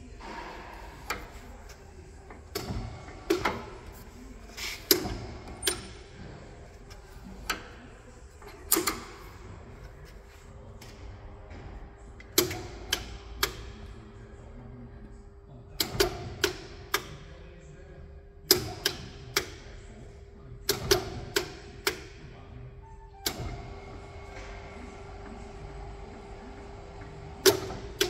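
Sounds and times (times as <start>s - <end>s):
steady machine hum: 0.0s - 15.8s, 21.5s - 28.0s.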